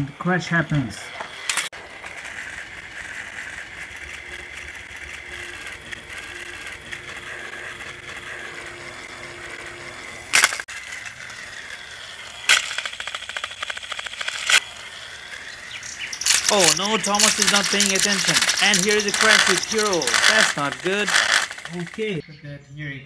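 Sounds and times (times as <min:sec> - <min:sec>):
toy train motor whine: 0:00.0 - 0:22.2
toy train wheels rattling: 0:00.5 - 0:22.2
sharp plastic clack: 0:10.3 - 0:10.7, 0:12.5 - 0:14.6.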